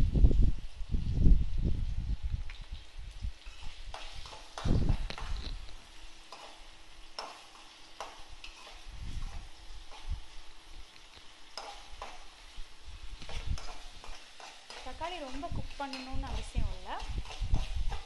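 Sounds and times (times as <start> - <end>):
light sizzle of frying: 0.0 - 18.0
metal spatula scraping a pan: 3.4 - 10.5, 11.5 - 18.0.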